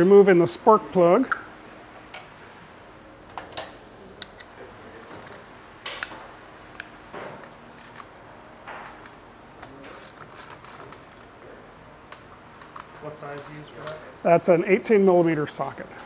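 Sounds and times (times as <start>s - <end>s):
ratchet wrench clicking: 4.3s - 5.4s, 9.9s - 11.3s.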